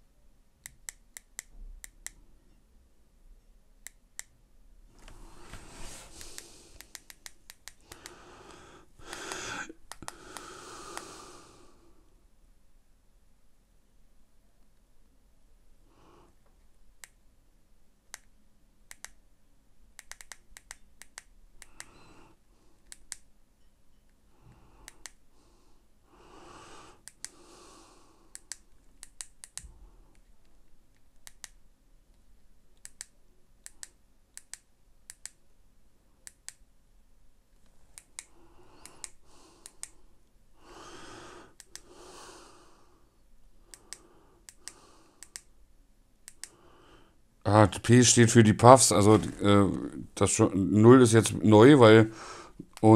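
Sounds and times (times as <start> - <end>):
soft handling noises: 4.9 - 8.1, 48.1 - 49.8.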